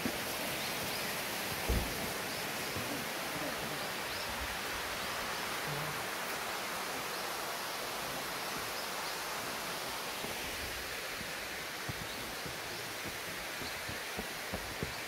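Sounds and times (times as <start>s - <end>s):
water rushing down waterfall: 0.0s - 15.0s
light thump: 1.7s - 2.0s.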